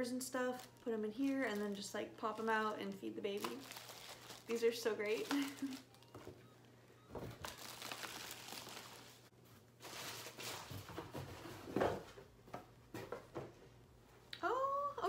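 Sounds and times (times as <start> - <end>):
packaging rustling: 0.4 - 10.8.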